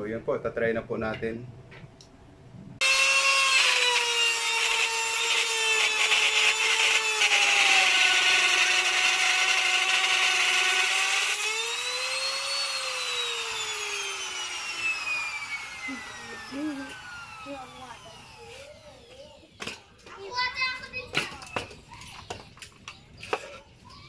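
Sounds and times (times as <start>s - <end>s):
router bit cutting wood: 2.8s - 18.8s
router motor whine: 2.8s - 19.2s.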